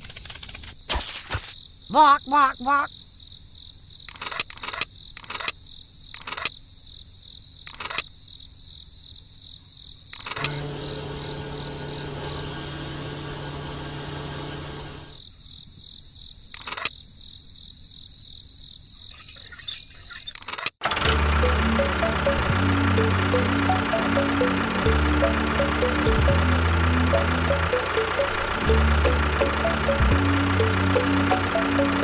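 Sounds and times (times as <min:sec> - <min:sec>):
crickets chirring: 0:00.0 - 0:12.6, 0:15.1 - 0:20.8
sharp clicks: 0:04.1 - 0:06.5, 0:07.7 - 0:08.1, 0:10.1 - 0:10.6, 0:16.5 - 0:16.9
small electric motor humming: 0:10.2 - 0:15.2.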